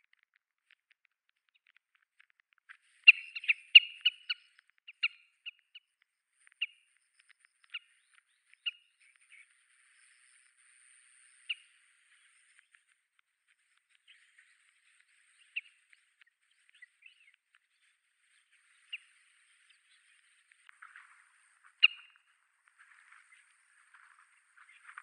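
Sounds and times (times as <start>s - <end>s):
birds calling sharply: 21.8s - 22.2s.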